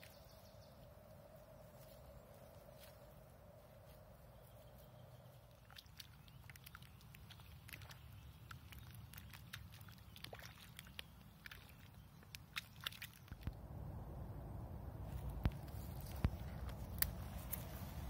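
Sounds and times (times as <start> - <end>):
hand stirring wet clay: 5.4 - 13.5
low steady rumble: 13.4 - 18.0.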